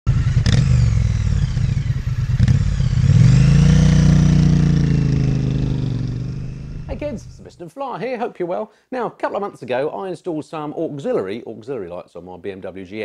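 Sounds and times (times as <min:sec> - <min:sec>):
motorcycle engine revving: 0:00.1 - 0:07.5.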